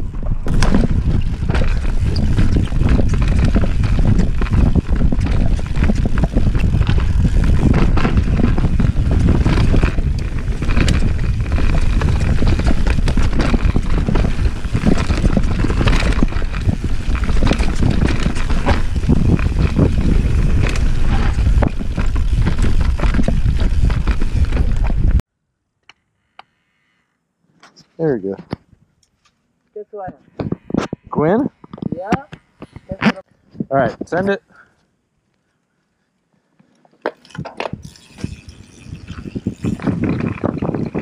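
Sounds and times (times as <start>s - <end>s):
bike chain and suspension rattling: 0.0s - 25.2s, 36.9s - 41.0s
tyres rumbling on dirt: 0.0s - 25.2s
wind buffeting microphone: 0.0s - 25.2s, 37.4s - 41.0s.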